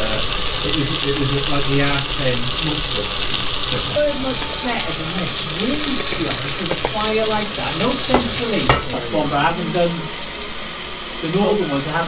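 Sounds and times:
steaks sizzling in a frying pan: 0:00.0 - 0:12.0
tongs knocking against pan: 0:06.6 - 0:09.1.

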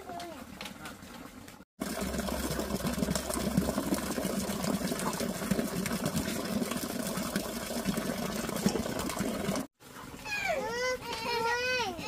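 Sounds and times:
water splashing into plastic bucket: 0:00.5 - 0:09.7.

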